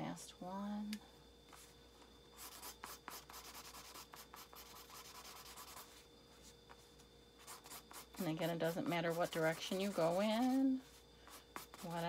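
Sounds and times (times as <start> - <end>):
marker scribbling on paper: 2.4 - 5.9, 7.4 - 10.6, 11.3 - 12.0.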